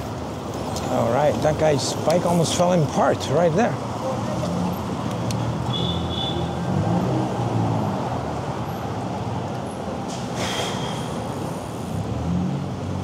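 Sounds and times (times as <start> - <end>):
road noise rush: 0.0 - 13.0
vehicle engines humming: 0.0 - 13.0
brief hiss: 10.1 - 11.2.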